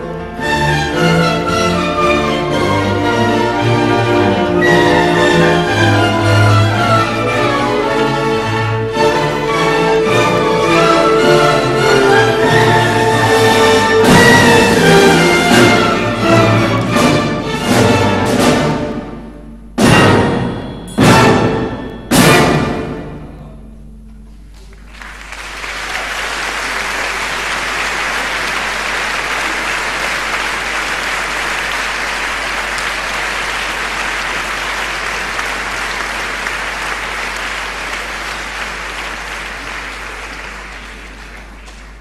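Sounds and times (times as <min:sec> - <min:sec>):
loud orchestral chord: 0:00.0 - 0:24.2
audience applause: 0:24.5 - 0:42.0.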